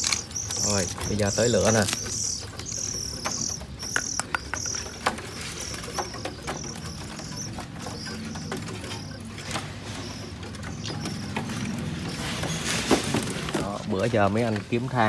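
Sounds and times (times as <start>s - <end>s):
small songbirds chirping: 0.0s - 15.0s.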